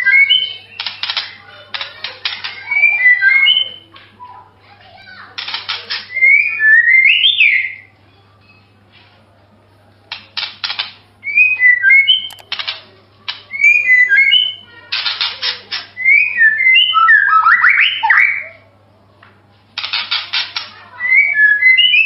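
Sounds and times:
bird whistled song: 0.0s - 1.4s, 2.5s - 4.4s, 5.9s - 7.9s, 11.2s - 12.4s, 13.5s - 14.7s, 16.0s - 18.6s, 20.9s - 22.0s
harsh rattling bird notes: 0.0s - 4.0s, 4.8s - 7.9s, 10.1s - 18.5s, 19.8s - 22.0s.

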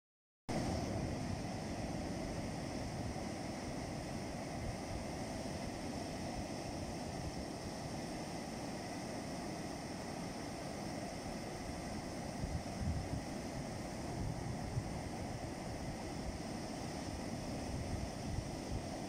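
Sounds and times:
surf washing on beach: 0.5s - 19.0s.

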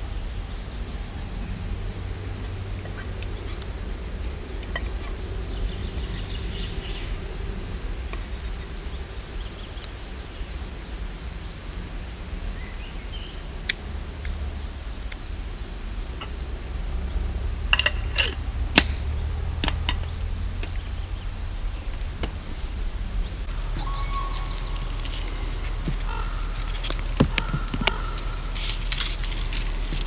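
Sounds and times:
steady low rumble: 0.0s - 30.0s
sharp clicks and light knocks: 17.7s - 21.0s.

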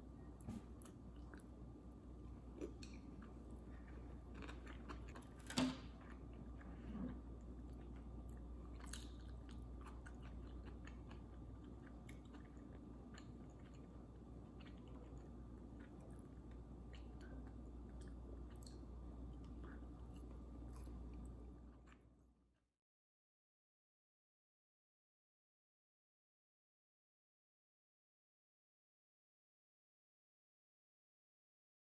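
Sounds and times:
quiet chewing: 0.3s - 22.1s.

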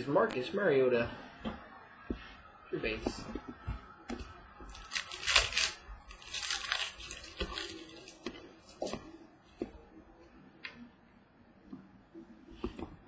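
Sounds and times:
plastic wrapper tearing and crinkling: 4.7s - 8.9s.

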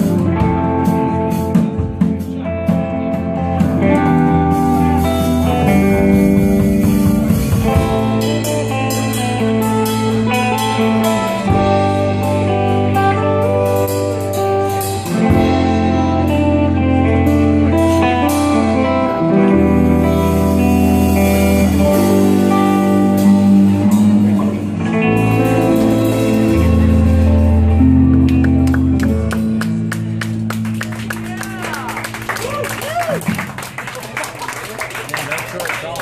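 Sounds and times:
drum kit with cymbals: 0.0s - 18.8s, 19.5s - 27.8s
electric guitars: 0.0s - 36.0s.

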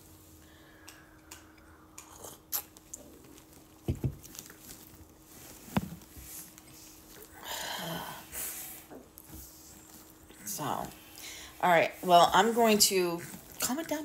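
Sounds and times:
faint steady hum: 0.0s - 14.0s
person sipping and swallowing: 1.5s - 3.2s.

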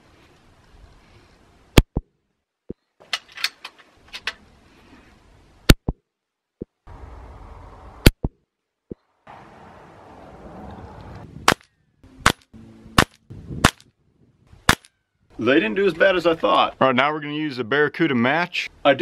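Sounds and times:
metallic bolt clicks: 3.0s - 4.4s
air rifle shots: 11.4s - 11.6s, 12.2s - 13.9s, 14.6s - 14.9s.

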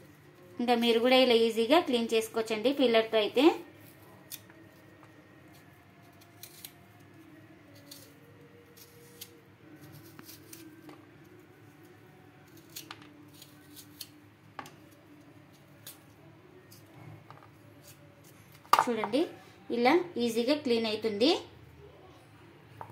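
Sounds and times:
vegetable peeler scraping coconut: 5.5s - 6.8s, 7.8s - 8.2s, 8.8s - 10.8s, 12.5s - 14.1s.

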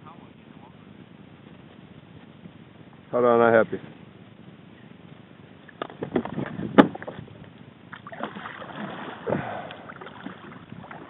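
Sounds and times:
water washing against hull: 5.8s - 11.0s.

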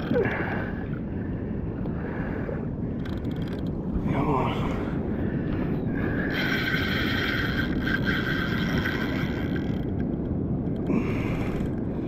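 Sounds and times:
water noise: 0.0s - 12.0s
wind on microphone: 0.0s - 12.0s
fishing reel whining: 6.2s - 10.1s.

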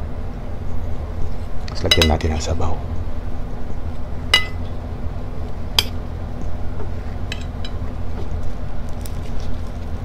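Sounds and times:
steady low hum: 0.0s - 10.0s
metal spoon clinking on glass bowl: 4.4s - 4.6s.

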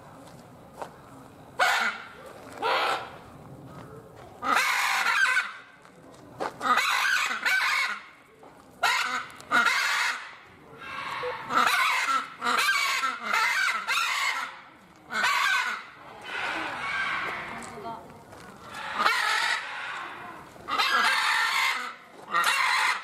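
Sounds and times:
macaws squawking: 4.4s - 5.6s, 6.6s - 8.0s, 8.8s - 17.7s, 18.6s - 23.0s.

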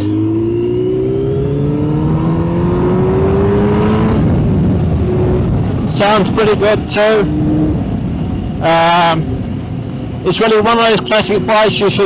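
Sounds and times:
motorcycle engine revving: 0.0s - 10.3s
wind and road noise: 0.0s - 12.0s.

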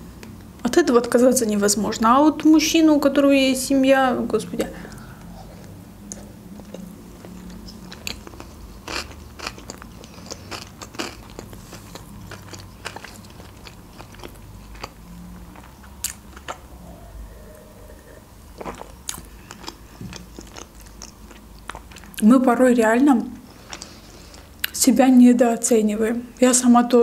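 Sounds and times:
wet chewing with mouth clicks: 4.9s - 16.7s, 17.4s - 22.2s, 23.5s - 24.8s.

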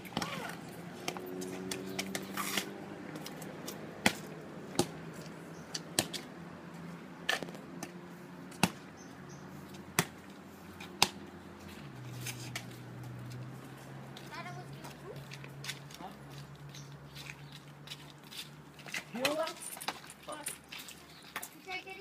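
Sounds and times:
rubber ball bouncing on asphalt: 0.0s - 6.4s, 7.2s - 11.4s.

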